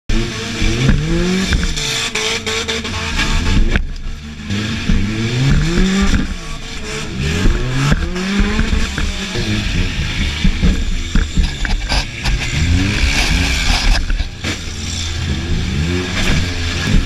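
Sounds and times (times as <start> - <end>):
car engine revving: 0.1 - 17.0
knocks and rattles: 0.7 - 2.1, 4.8 - 17.0.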